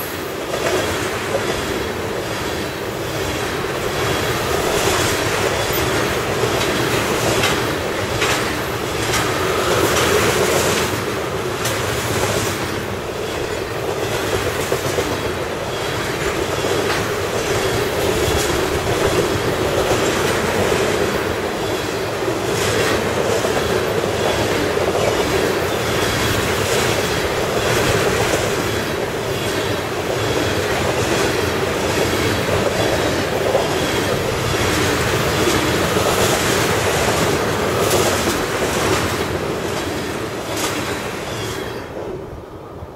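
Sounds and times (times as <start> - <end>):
wheels clicking over rail joints: 0.0 - 42.1
train wheels rumbling on rails: 0.0 - 42.9.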